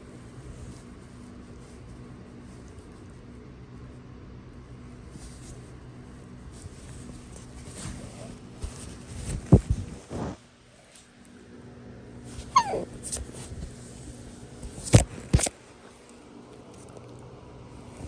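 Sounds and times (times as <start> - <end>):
dog whining: 12.4 - 13.2.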